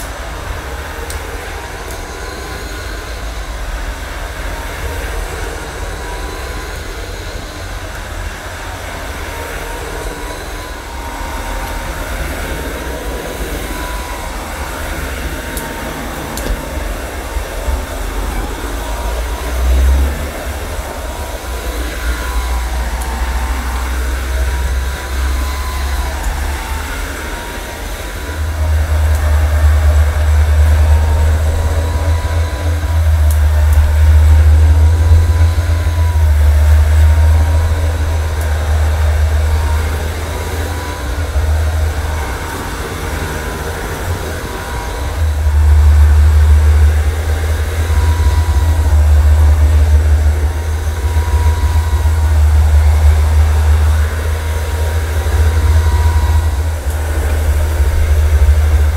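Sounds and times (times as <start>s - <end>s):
floor cleaner humming and whining: 0.0s - 58.9s.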